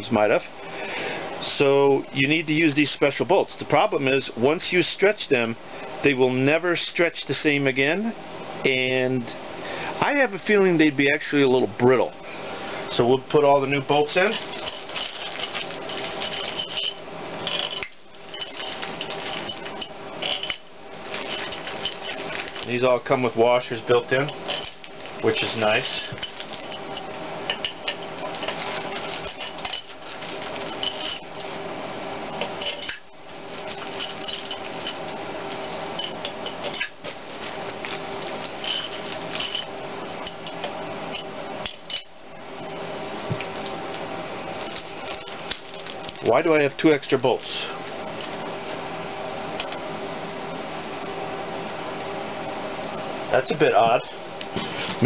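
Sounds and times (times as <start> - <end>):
steady background hum: 0.0 - 55.0
plastic bag rustling: 14.2 - 22.8, 24.1 - 31.4, 33.4 - 39.7, 44.6 - 46.3.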